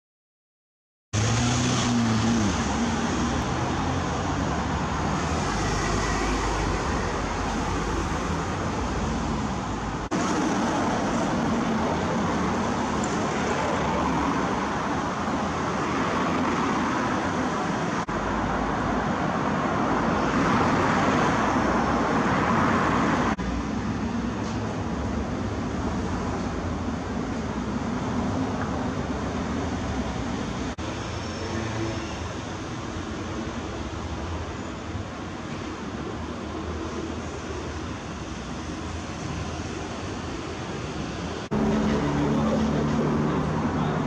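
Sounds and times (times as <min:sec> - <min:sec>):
busy road traffic: 0:01.1 - 0:44.0
cars passing: 0:01.2 - 0:44.0
vehicle engine hum: 0:39.9 - 0:44.0.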